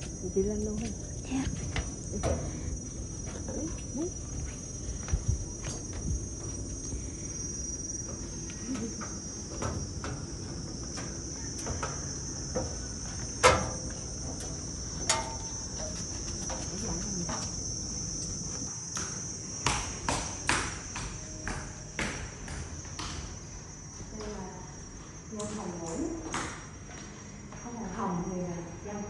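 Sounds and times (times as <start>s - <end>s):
insects droning: 0.0s - 29.0s.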